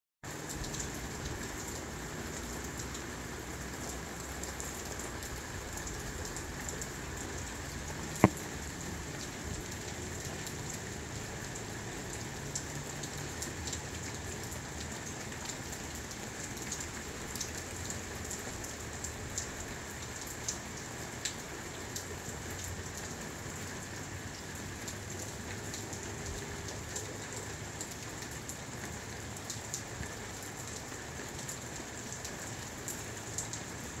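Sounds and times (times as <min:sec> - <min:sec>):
steady rain falling: 0:00.2 - 0:34.0
raindrop ticks: 0:00.3 - 0:23.2
sharp click: 0:08.2 - 0:08.4.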